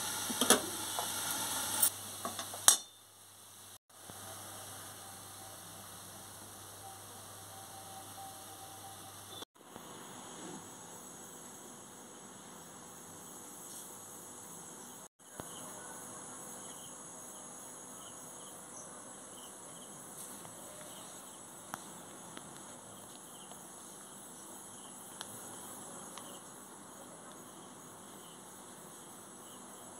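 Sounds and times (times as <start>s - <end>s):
faint high chirps: 4.6s - 9.5s.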